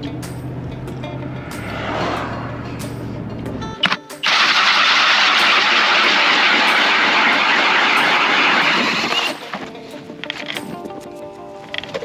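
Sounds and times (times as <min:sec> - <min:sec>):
power ice auger grinding ice: 0:04.2 - 0:09.6.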